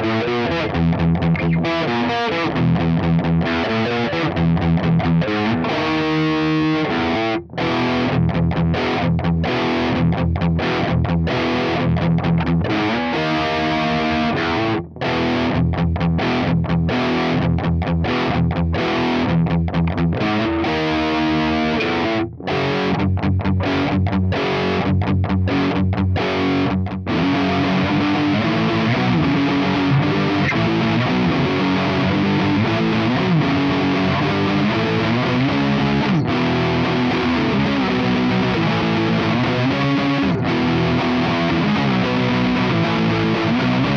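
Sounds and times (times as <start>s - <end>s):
distorted electric guitar riffing: 0.0s - 43.9s.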